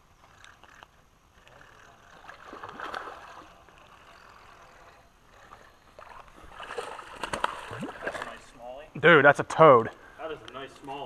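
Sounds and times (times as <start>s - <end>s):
fish splashing at water surface: 6.0s - 8.4s.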